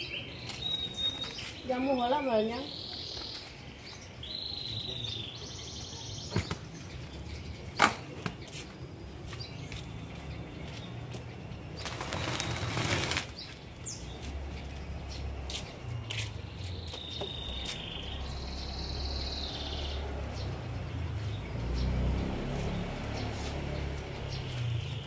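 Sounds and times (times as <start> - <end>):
rustling foliage: 6.5 - 18.3, 21.1 - 25.0.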